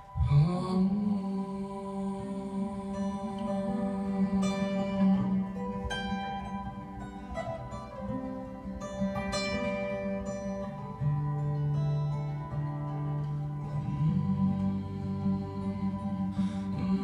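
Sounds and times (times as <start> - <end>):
solo acoustic guitar: 0.0 - 17.0.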